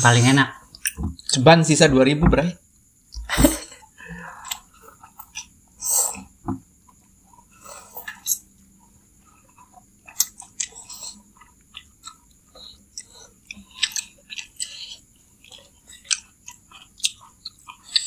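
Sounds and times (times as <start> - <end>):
wet chewing: 7.0 - 18.0.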